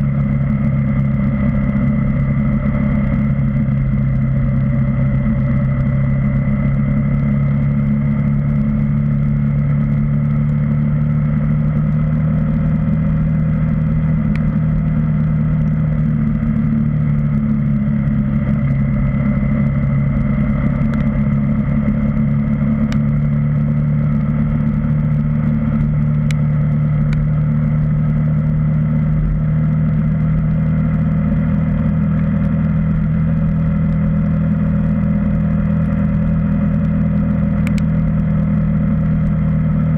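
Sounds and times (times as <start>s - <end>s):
motorcycle engine cruising: 0.0s - 39.9s
faint ticks: 37.6s - 37.9s.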